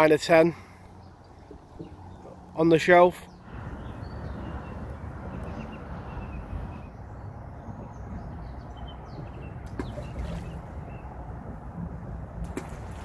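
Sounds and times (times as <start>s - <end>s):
small birds chirping: 0.6s - 11.2s
wind rumbling on microphone: 3.2s - 13.0s
sharp knocks or splashes: 9.3s - 10.7s, 12.4s - 13.0s.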